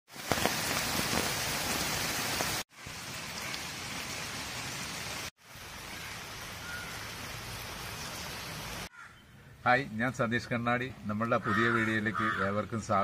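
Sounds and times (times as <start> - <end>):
rain falling on foliage: 0.1 - 8.9.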